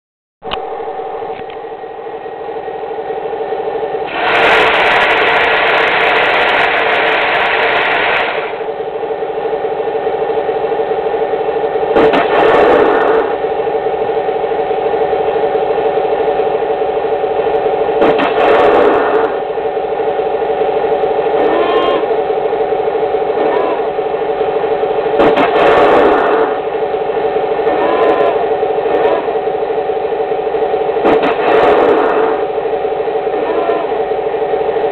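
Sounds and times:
model tank humming: 0.7s - 34.9s
rushing noise bursts: 4.0s - 8.7s.

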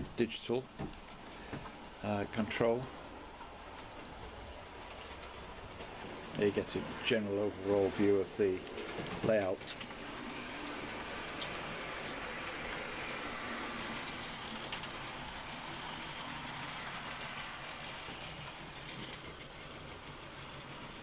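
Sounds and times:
model train wheels rumbling: 0.0s - 21.0s.

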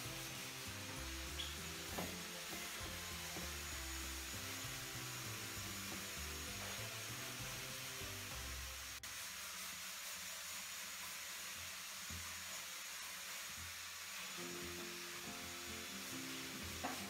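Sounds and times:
quiet background music: 0.0s - 9.0s, 14.3s - 17.0s
steady hiss: 0.0s - 17.0s.

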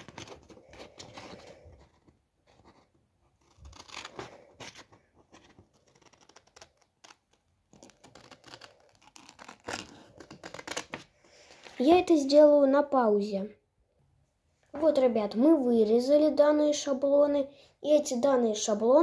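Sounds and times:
scissors cutting paper: 0.0s - 1.5s, 3.4s - 11.0s
paper rustling: 0.0s - 11.9s.

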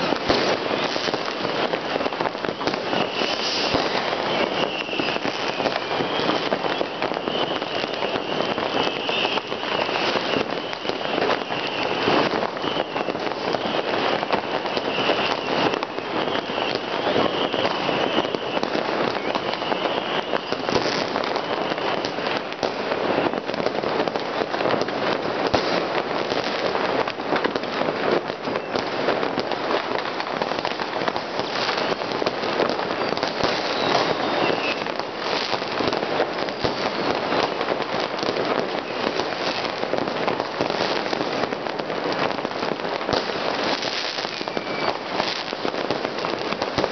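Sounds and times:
fireworks crackling: 0.0s - 46.9s
faint high whistle: 2.5s - 23.5s, 30.7s - 35.7s, 43.7s - 45.6s.

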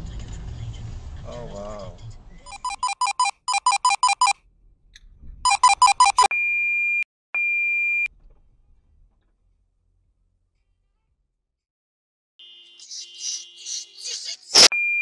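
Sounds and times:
long high steady beeps: 2.5s - 4.3s, 5.5s - 8.1s
short two-tone electronic beeps: 2.5s - 4.4s, 5.5s - 8.1s, 14.6s - 15.0s.

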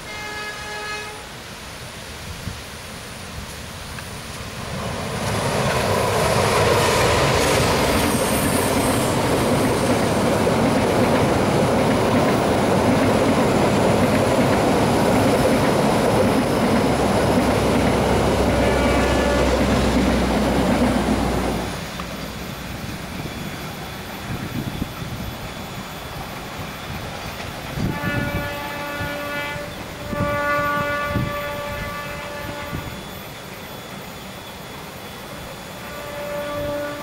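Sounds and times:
train wheels clattering over bridge: 3.4s - 37.0s.

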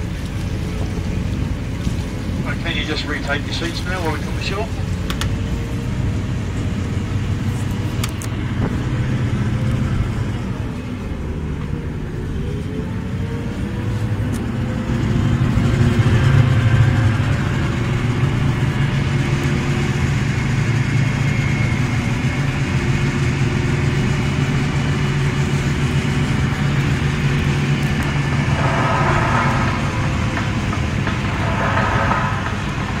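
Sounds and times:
boat engine running: 0.0s - 33.0s.

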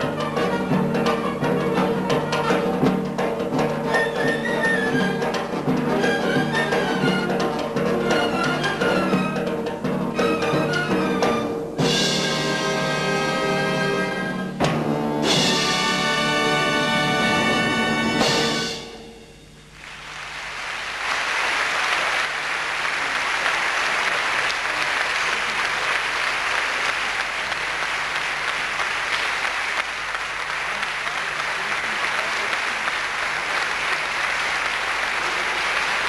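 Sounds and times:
audience applause: 19.8s - 36.0s.

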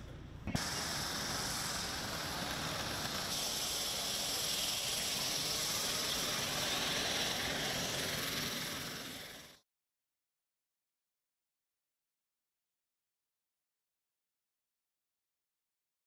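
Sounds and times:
aircraft engine hissing: 0.0s - 9.6s.

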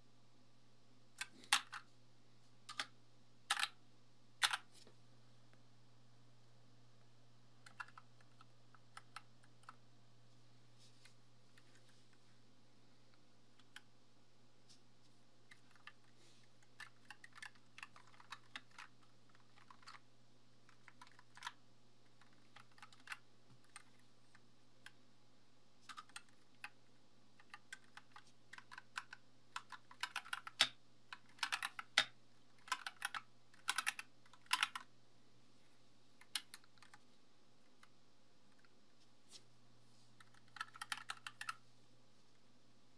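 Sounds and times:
faint low hum: 0.0s - 42.9s
mechanical keyboard keys clacking: 3.5s - 3.8s, 4.4s - 4.7s, 7.7s - 9.7s, 16.7s - 20.0s, 20.7s - 21.6s, 22.2s - 24.0s, 25.9s - 26.8s, 27.4s - 34.9s, 40.2s - 41.6s.

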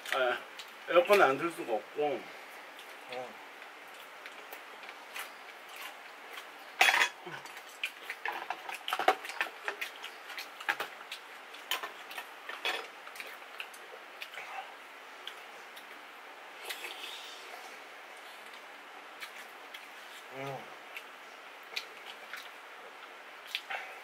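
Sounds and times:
chewing: 2.8s - 16.0s, 18.2s - 24.0s
utensils clattering: 6.8s - 7.2s.

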